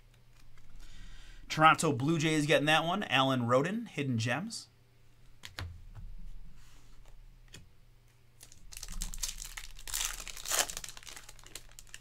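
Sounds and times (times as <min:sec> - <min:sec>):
foil wrapper crinkling: 0:08.4 - 0:12.0.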